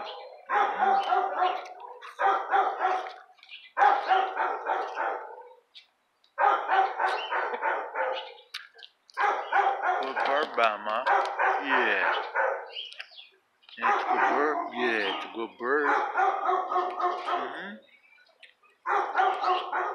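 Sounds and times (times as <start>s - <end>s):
dog barking: 0.0s - 5.6s, 6.4s - 8.4s, 9.2s - 12.8s, 13.8s - 17.8s, 18.8s - 19.9s.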